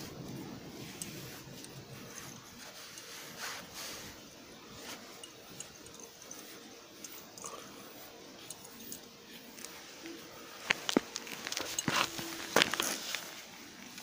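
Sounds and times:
brush stroking through cat fur: 0.0s - 14.0s.

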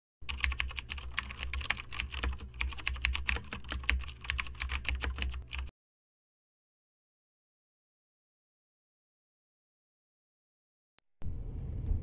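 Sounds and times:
low hum: 11.2s - 12.0s.

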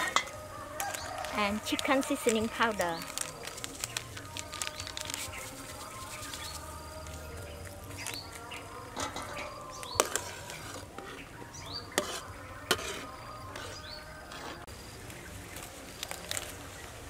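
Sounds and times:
birds chirping: 0.0s - 17.0s
metal ladle clinking in pot: 9.0s - 10.4s.

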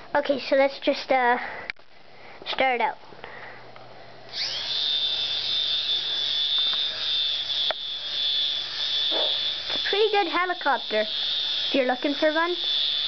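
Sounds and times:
toy helicopter motor whine: 4.3s - 13.0s.

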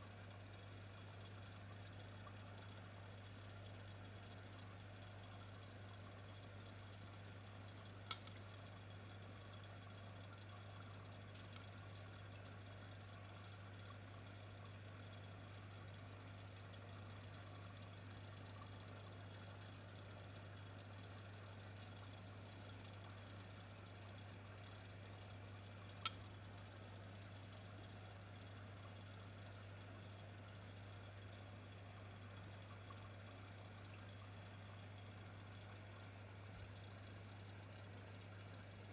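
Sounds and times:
faint steady low hum: 0.0s - 38.9s.

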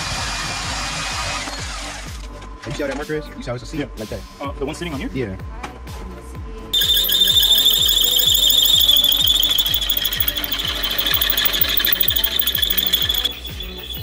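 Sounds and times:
drill bit squealing into metal: 6.8s - 14.0s.

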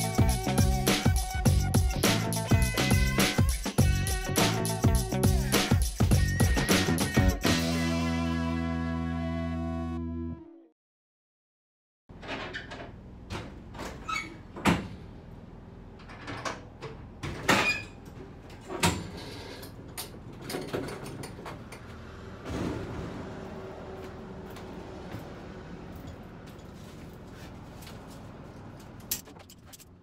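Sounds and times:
knocks and clanks in a trailer: 16.0s - 30.0s.

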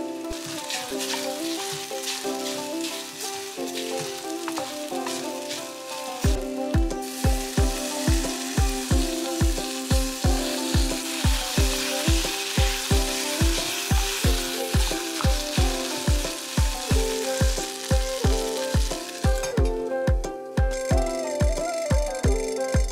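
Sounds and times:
food sizzling in a pot: 0.0s - 19.6s
background music with beat: 0.0s - 22.9s
wooden spoon stirring: 0.3s - 6.4s.

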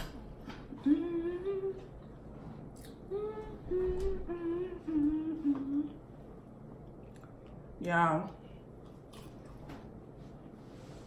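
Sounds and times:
woman humming: 0.5s - 2.1s, 2.8s - 6.1s.

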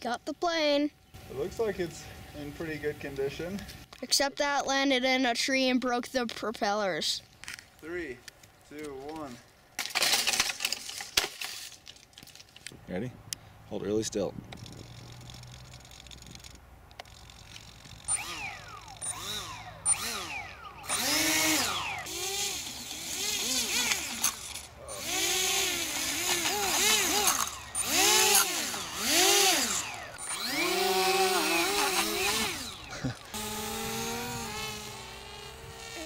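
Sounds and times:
electric model plane motors whining: 14.6s - 36.0s.

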